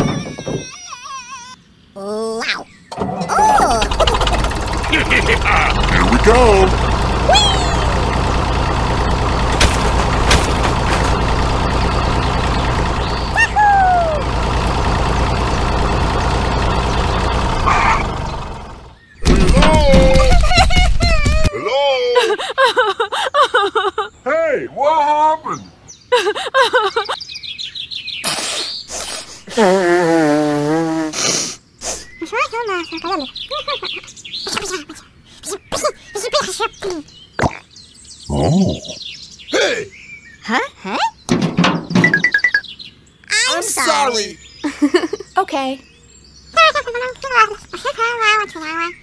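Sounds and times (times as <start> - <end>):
squeaky cartoon voices chattering: 0.0 - 6.7, 7.3 - 8.1, 32.0 - 37.7, 43.2 - 44.4, 46.5 - 49.0
tractor engine idling: 3.0 - 21.5.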